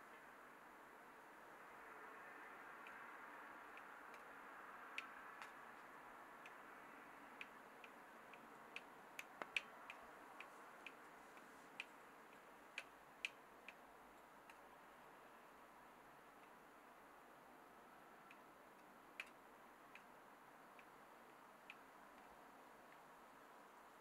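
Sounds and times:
low hiss: 0.0s - 24.0s
faint small clicks: 7.3s - 14.7s, 18.2s - 23.1s.

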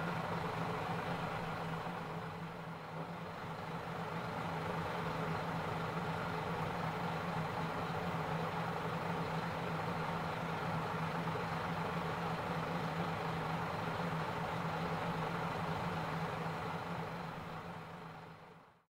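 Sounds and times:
diesel railcar engine idling: 0.0s - 18.8s.

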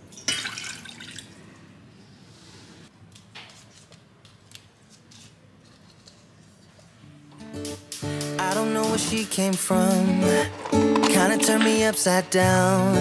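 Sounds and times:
water pouring into saucepan: 0.1s - 1.4s.

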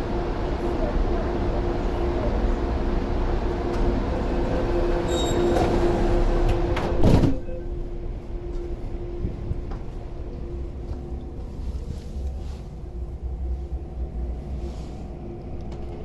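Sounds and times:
sliding train doors closing: 0.8s - 16.0s.

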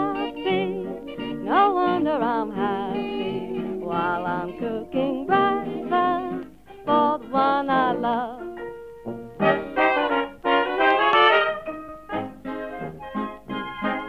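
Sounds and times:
woman singing: 0.0s - 8.6s
small dance band: 0.0s - 14.0s.

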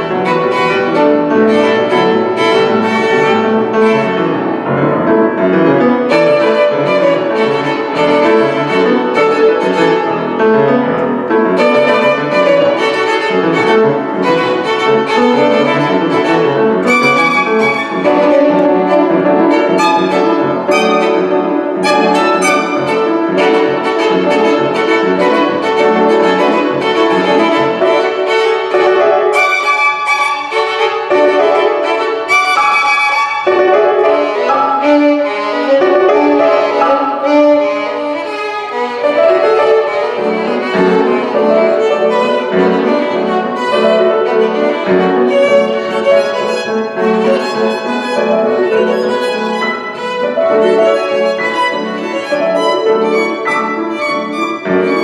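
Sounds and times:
grand piano playing: 0.0s - 55.0s
violin playing quick notes: 11.0s - 28.6s.

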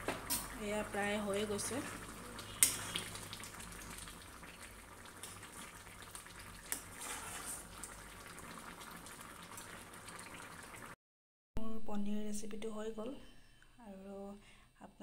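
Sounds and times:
curry simmering: 0.0s - 11.0s.

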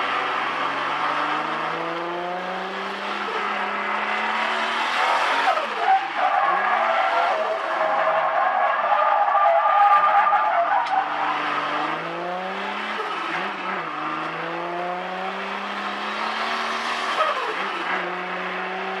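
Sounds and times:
car engine revving in cabin: 0.0s - 5.8s, 11.0s - 19.0s.

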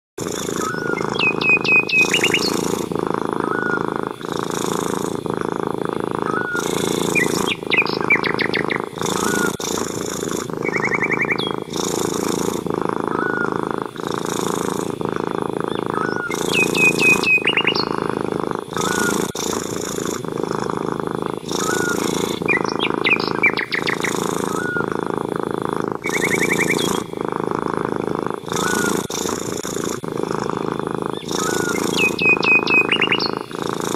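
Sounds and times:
cat purring: 0.2s - 33.9s
bird trilling and chirping: 0.4s - 3.8s, 6.3s - 12.2s, 13.1s - 13.6s, 15.6s - 20.0s, 21.4s - 25.0s, 26.0s - 27.1s, 28.5s - 29.2s, 30.5s - 33.6s.

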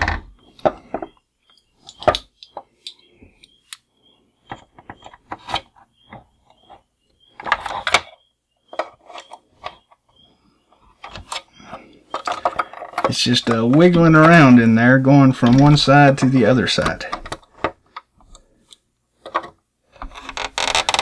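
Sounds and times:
plastic toy parts clicking: 11.0s - 14.4s.

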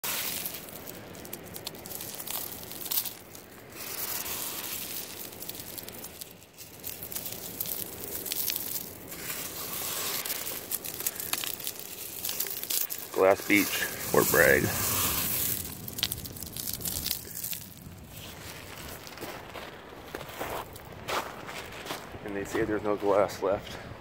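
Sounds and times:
steady hiss: 0.0s - 19.1s
pebbles clicking in hand: 0.1s - 17.9s.

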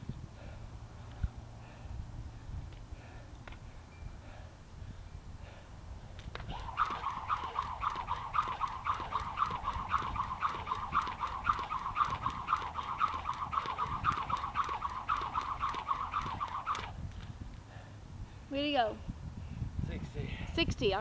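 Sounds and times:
jump rope whirring: 5.4s - 17.7s
rope ticking on ground: 6.2s - 17.7s.

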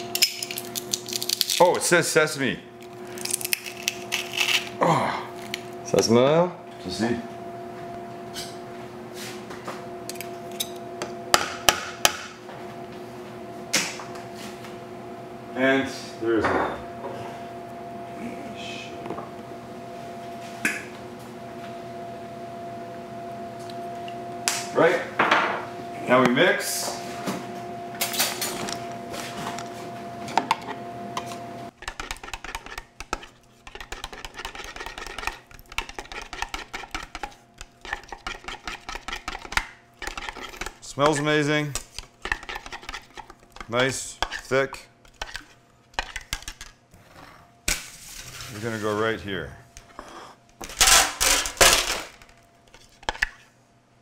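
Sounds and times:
spoon scraping plastic cup: 31.7s - 46.7s, 52.7s - 53.4s.

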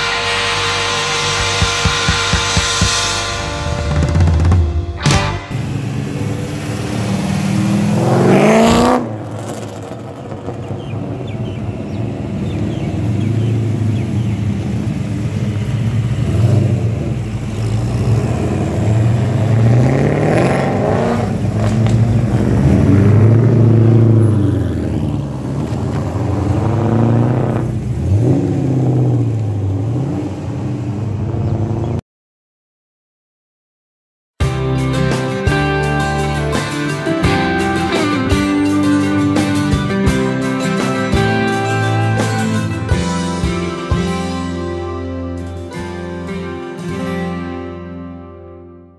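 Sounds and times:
cars driving past revving: 5.5s - 32.0s.

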